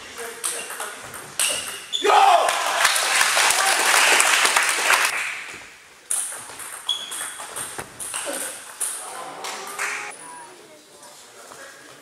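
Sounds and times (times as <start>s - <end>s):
people clapping: 2.3s - 5.5s, 9.4s - 10.1s.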